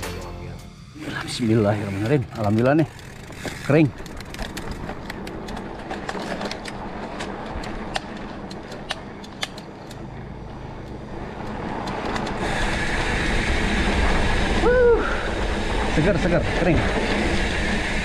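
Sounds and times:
bike tyres rumbling on dirt trail: 1.3 - 18.0
bike clicks and knocks: 1.8 - 12.5.

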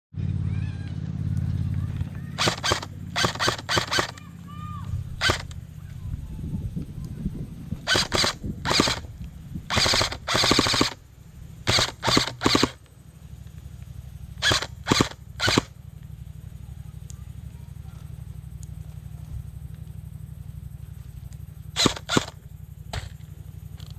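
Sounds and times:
airsoft gun firing bursts: 2.2 - 4.4, 5.1 - 5.6, 7.8 - 12.8, 14.4 - 15.8, 21.7 - 23.2.

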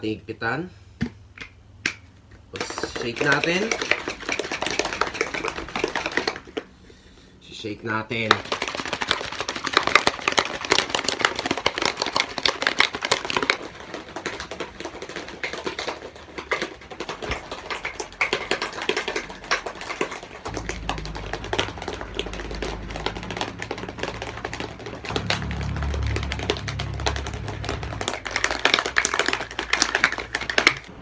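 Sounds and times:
shaker bottle rattling: 1.9 - 6.8, 8.1 - 31.0
low steady hum: 15.0 - 31.0.

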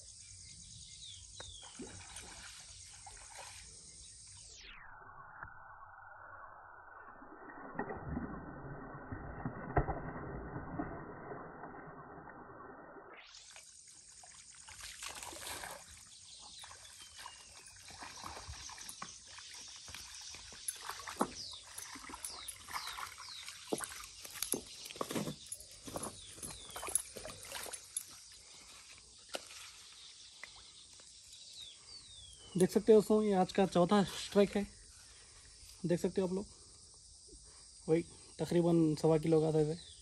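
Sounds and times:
fish thrashing and splashing: 20.8 - 25.1, 26.4 - 28.1.

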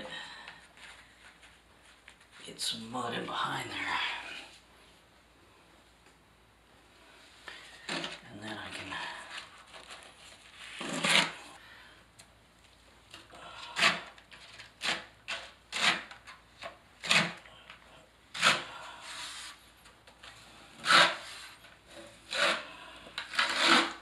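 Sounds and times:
blade scraping mortar: 10.6 - 11.6, 13.6 - 16.4, 17.0 - 17.5, 18.3 - 19.6, 20.7 - 24.0.

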